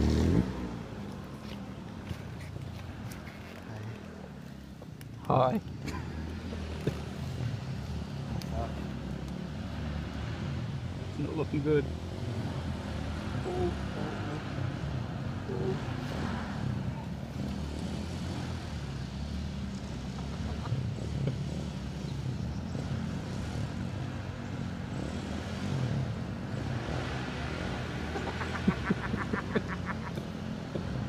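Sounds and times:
dirt bike engine revving: 0.0 - 0.8.

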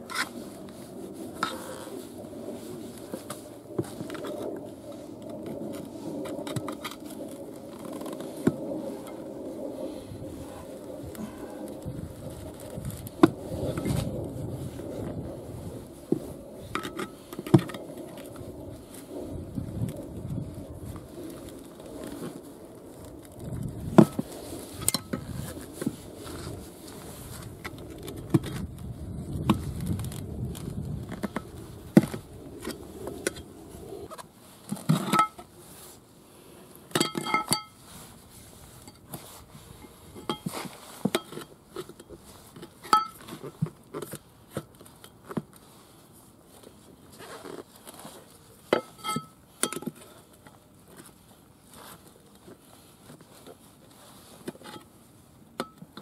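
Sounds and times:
rustling of handling: 0.0 - 56.0.

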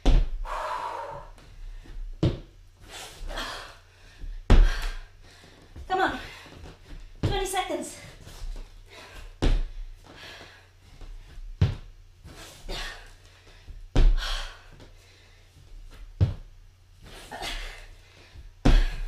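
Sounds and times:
hard breathing: 0.4 - 2.1, 8.0 - 11.4
feet thudding on wooden floor: 1.8 - 2.5, 11.0 - 12.4, 15.9 - 16.5, 18.6 - 19.0.

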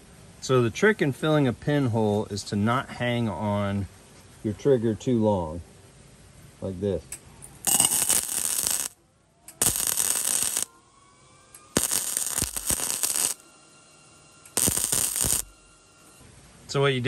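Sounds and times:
welder arc crackling: 7.6 - 10.7, 11.7 - 13.4, 14.5 - 15.6.

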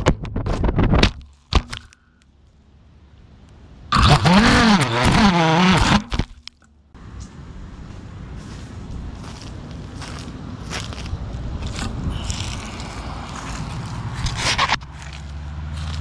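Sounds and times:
sharp cracks and knocks: 0.0 - 2.0, 4.9 - 7.4
motors whining: 3.9 - 6.4.

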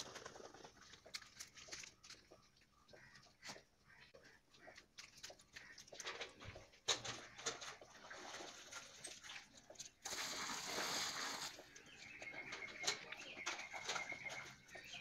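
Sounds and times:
water splashing into metal basin: 7.4 - 11.6.

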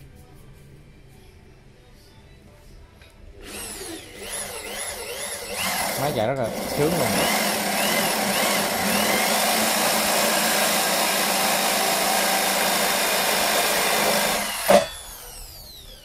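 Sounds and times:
drill boring into wood: 3.4 - 16.0
drill motor whining down: 3.4 - 16.0.

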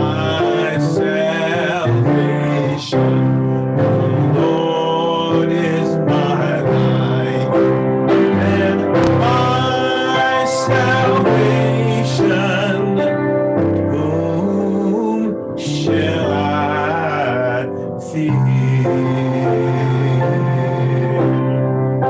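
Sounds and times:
instrumental accompaniment: 0.0 - 22.0
worship song singing: 0.0 - 22.0.

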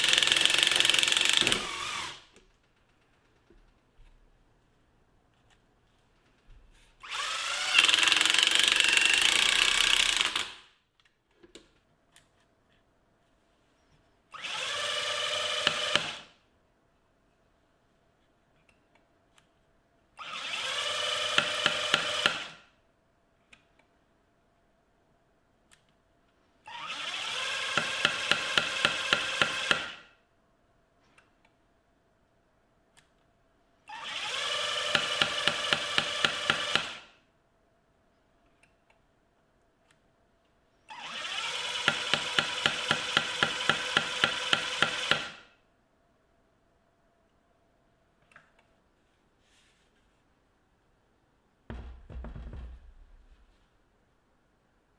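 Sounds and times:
impact driver hammer knocking: 0.0 - 1.8, 41.8 - 45.3, 51.7 - 53.2
impact driver motor whining: 0.0 - 2.2, 7.0 - 10.6.

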